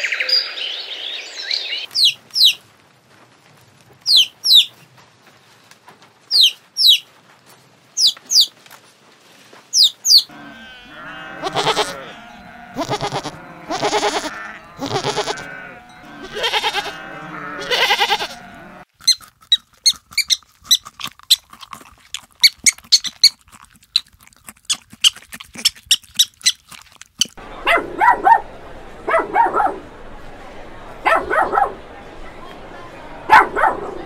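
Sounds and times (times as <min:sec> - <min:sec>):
porcupines squeaking: 0:09.8 - 0:24.1, 0:24.7 - 0:27.4
goat bleating: 0:10.3 - 0:18.8.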